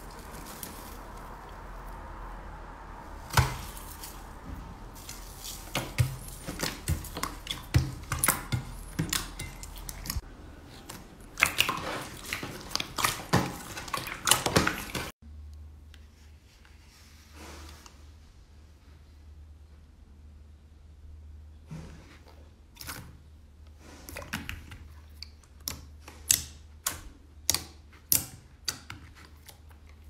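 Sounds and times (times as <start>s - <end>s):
hands squishing slime: 5.0s - 15.1s.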